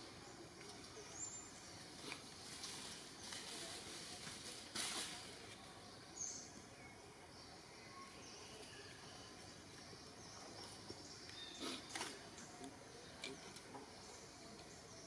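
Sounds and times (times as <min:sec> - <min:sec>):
faint steady hiss: 0:00.0 - 0:15.0
brief rustle: 0:02.0 - 0:05.6
faint bird chirps: 0:05.7 - 0:15.0.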